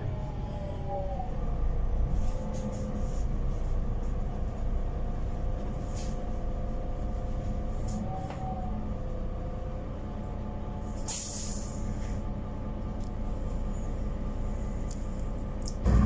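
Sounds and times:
bus drivetrain rumble: 0:00.0 - 0:16.0
short hisses: 0:11.1 - 0:12.0.

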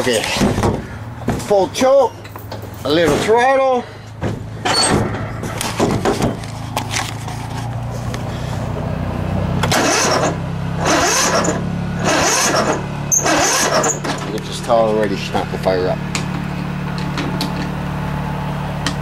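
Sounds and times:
engine cranked by electric starter: 0:09.5 - 0:19.0.

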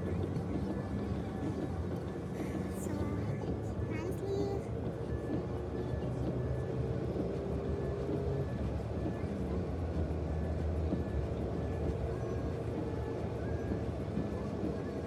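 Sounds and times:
car tyre and engine noise: 0:00.0 - 0:03.9, 0:04.7 - 0:15.0.

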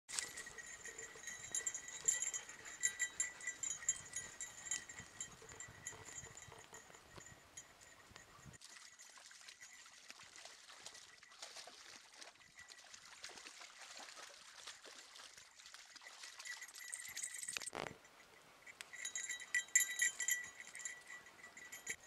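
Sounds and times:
creek trickling: 0:00.1 - 0:22.0
dogs splashing in water: 0:08.5 - 0:17.5.

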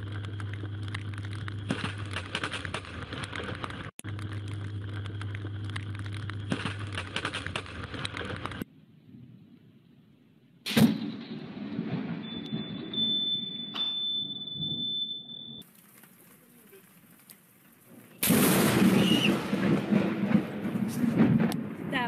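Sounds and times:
thunder crack and rumble: 0:10.6 - 0:13.7, 0:17.9 - 0:22.0
high beep: 0:12.2 - 0:15.6.

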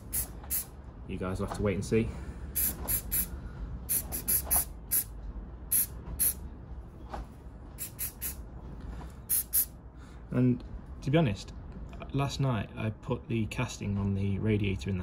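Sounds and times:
spray paint can hissing: 0:00.0 - 0:00.7, 0:02.6 - 0:03.3, 0:03.9 - 0:05.1, 0:05.7 - 0:06.4, 0:07.8 - 0:08.4, 0:09.3 - 0:09.7.

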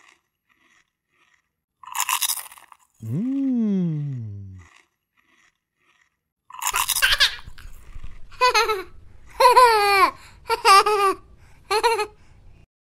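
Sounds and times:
slurping chewing sound: 0:00.0 - 0:09.4.

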